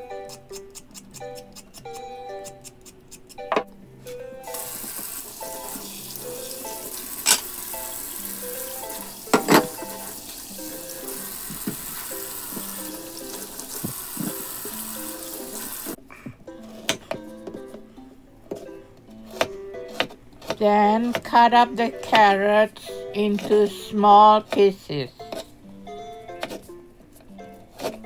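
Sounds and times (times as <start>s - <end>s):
tap water running into sink: 4.5s - 16.0s.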